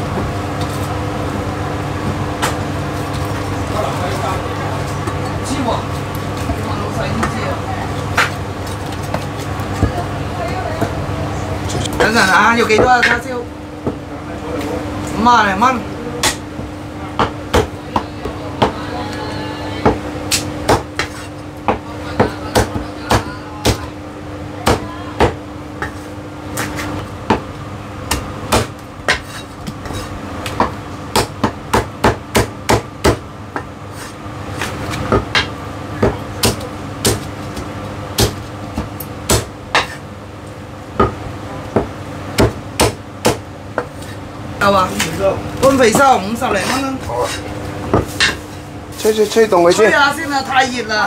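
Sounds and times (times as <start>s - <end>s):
cleaver chopping on wooden block: 20.3s - 23.9s, 30.5s - 33.7s, 35.1s - 37.3s, 41.8s - 43.9s.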